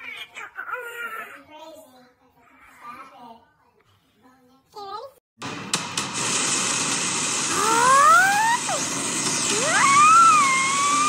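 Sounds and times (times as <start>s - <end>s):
child wailing: 7.6s - 8.8s, 9.6s - 11.0s.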